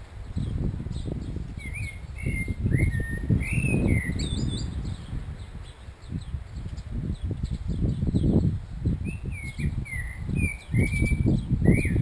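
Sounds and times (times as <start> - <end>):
low gusty rumble: 0.0 - 12.0
blackbird singing: 0.2 - 12.0.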